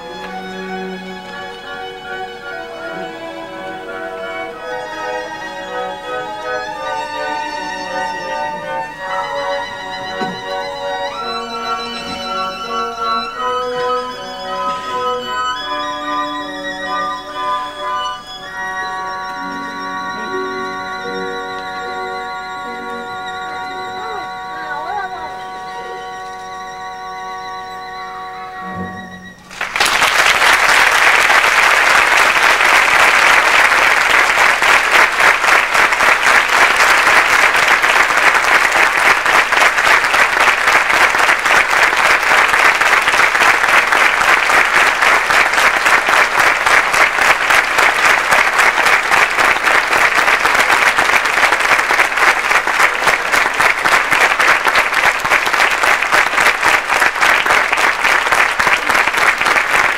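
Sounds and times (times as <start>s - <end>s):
audience applauding: 29.4s - 59.9s.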